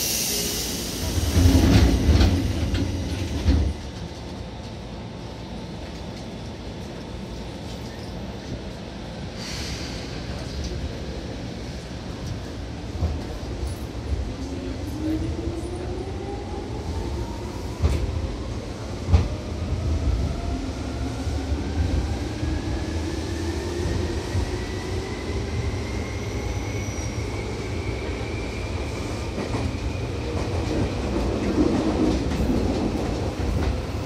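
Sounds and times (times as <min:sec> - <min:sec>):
train rumble: 0:00.0 - 0:34.0.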